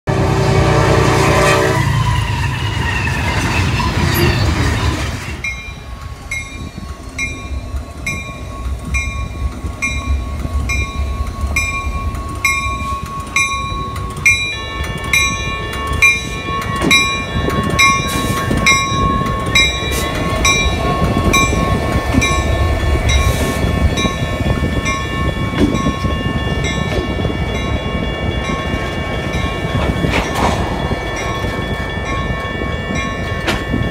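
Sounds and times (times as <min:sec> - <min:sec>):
locomotive horn: 0:00.1 - 0:02.5
low rumble of train: 0:00.1 - 0:33.9
crossing bell ringing: 0:05.2 - 0:33.9.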